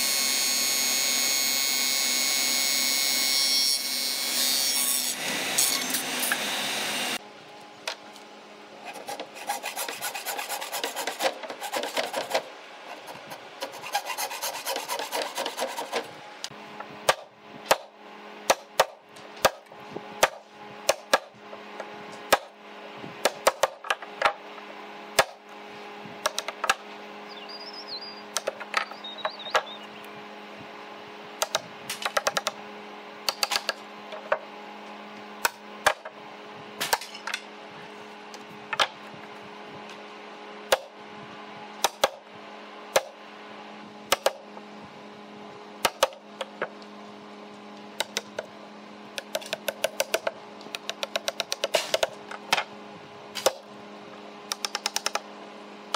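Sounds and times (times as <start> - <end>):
wood sanded by hand: 8.8 - 16.1.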